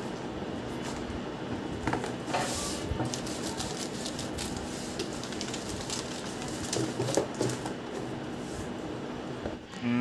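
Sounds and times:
plastic mailer crinkling: 0:03.1 - 0:07.6.

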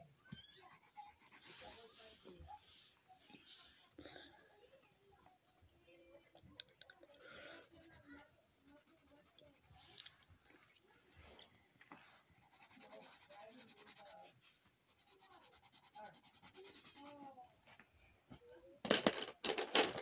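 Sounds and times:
pencil scratching on paper: 0:00.3 - 0:04.0, 0:07.2 - 0:09.8, 0:12.0 - 0:17.4.

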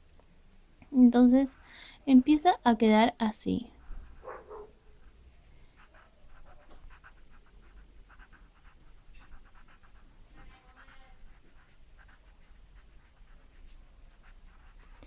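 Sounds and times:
pencil scratching on paper: 0:03.8 - 0:15.0.

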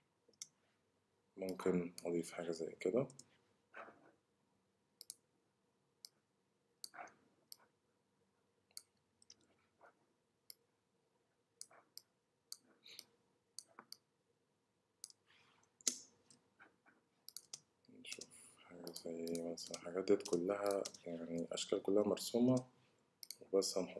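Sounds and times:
computer mouse clicks: 0:05.0 - 0:05.2, 0:06.8 - 0:07.6, 0:15.0 - 0:16.4, 0:17.3 - 0:21.5, 0:22.5 - 0:23.4.

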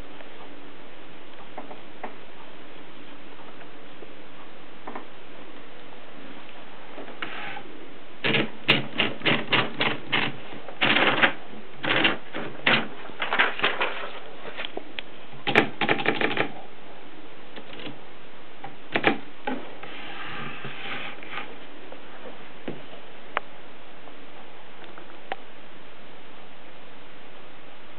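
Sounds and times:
typewriter keys clicking: 0:08.2 - 0:13.7, 0:15.4 - 0:16.6.

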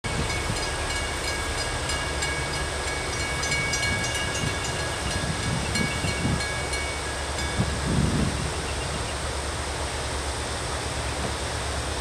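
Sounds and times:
crossing warning bell ringing: 0:00.0 - 0:09.3
freight train rumble: 0:00.0 - 0:12.0.

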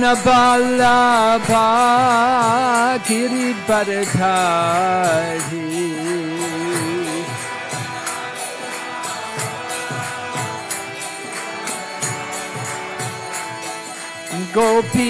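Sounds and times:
held organ-like chords: 0:00.0 - 0:15.0
person singing: 0:00.0 - 0:15.0.

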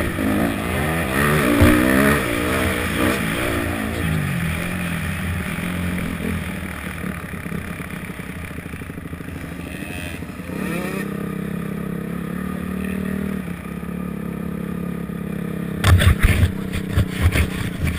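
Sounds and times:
motocross bike engine revving: 0:00.0 - 0:17.9
loud thumps: 0:01.4 - 0:02.2.

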